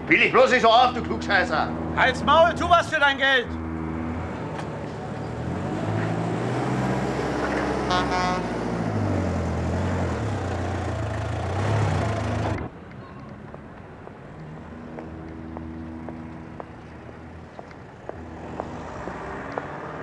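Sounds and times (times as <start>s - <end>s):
engine running with shifting revs: 3.6s - 12.7s
short horn toot: 7.9s - 8.6s.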